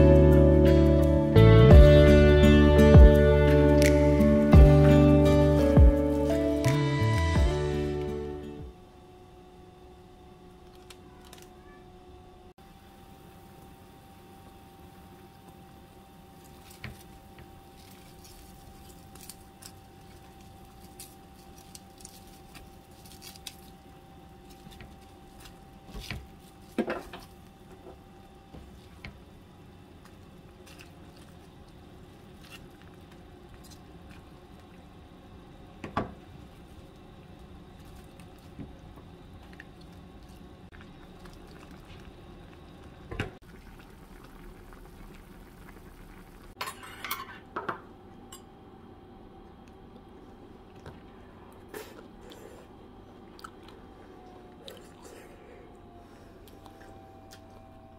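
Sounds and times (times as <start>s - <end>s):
soup bubbling in a pot: 27.4s - 46.6s.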